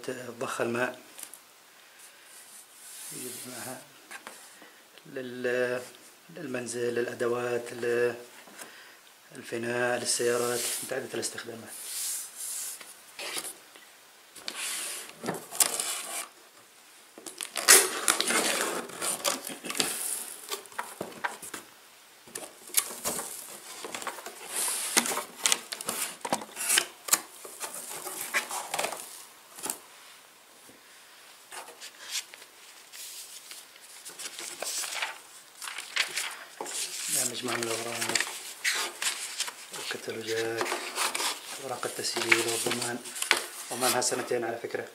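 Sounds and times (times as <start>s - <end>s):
cardboard box scraping and rustling: 17.6s - 20.3s.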